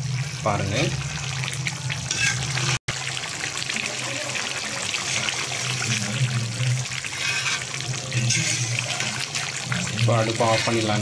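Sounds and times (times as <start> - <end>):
gravy bubbling in a pan: 0.0 - 11.0
metal ladle stirring: 2.1 - 2.8, 4.9 - 11.0.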